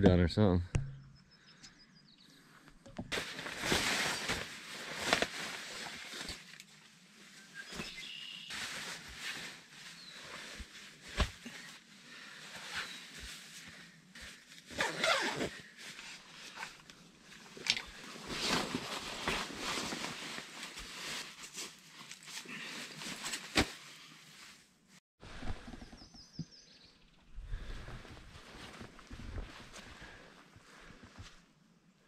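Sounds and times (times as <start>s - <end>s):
fabric rustling: 3.1s - 24.6s
zipper being pulled: 14.7s - 15.6s.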